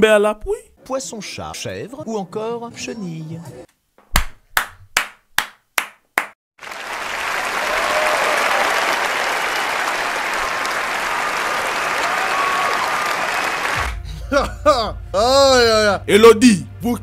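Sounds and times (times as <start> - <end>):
sharp hand claps: 4.1 - 14.0
audience applause: 6.6 - 14.0.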